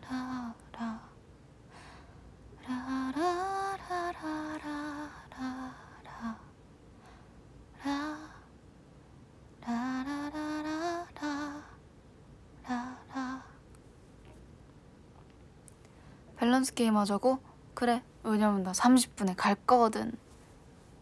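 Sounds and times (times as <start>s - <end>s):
woman singing unaccompanied: 0.0s - 1.2s, 2.6s - 6.5s, 7.8s - 8.5s, 9.6s - 11.8s, 12.6s - 13.6s.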